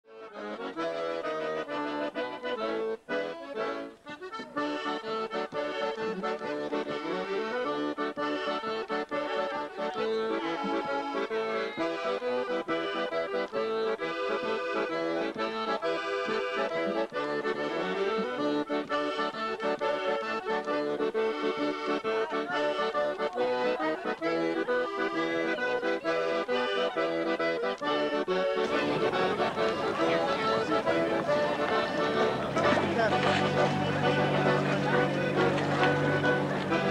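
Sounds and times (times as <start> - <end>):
accordion music: 0.1 - 36.9
outdoor background rush: 9.4 - 36.9.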